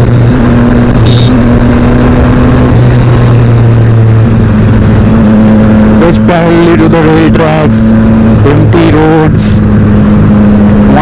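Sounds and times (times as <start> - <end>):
wind noise: 0.0 - 6.0
motorcycle engine cruising: 0.0 - 11.0
road noise: 0.0 - 11.0.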